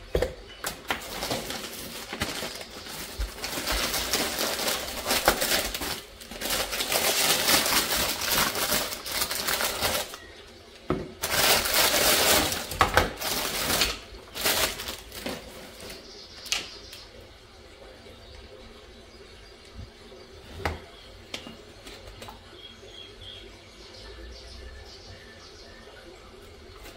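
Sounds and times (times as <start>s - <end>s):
crackling rustling handling noise: 0.6s - 17.2s.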